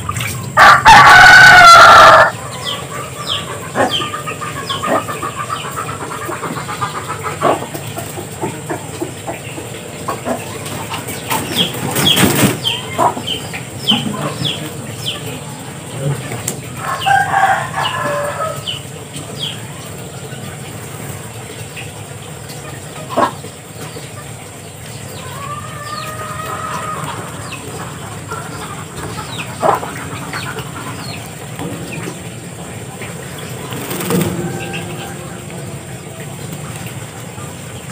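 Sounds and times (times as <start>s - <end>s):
ducks chirping: 0.0s - 37.9s
wing-flapping or splashing: 10.5s - 12.9s, 27.1s - 37.9s
steady low hum: 27.0s - 37.9s.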